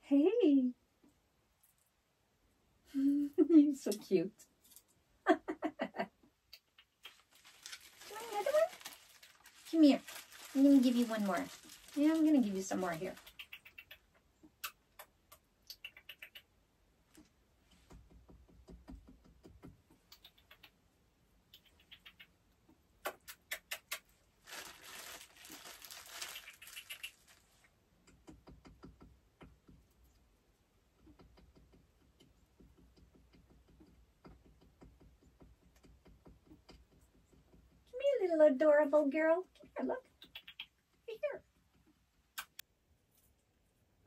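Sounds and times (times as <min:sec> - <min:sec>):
small animal rustling in firewood: 0:07.0 - 0:13.5, 0:24.4 - 0:27.7.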